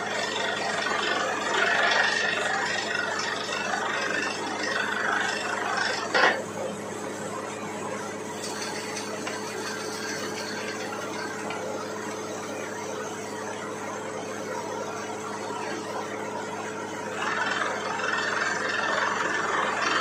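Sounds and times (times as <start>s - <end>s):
drilling rig humming: 8.0s - 20.0s.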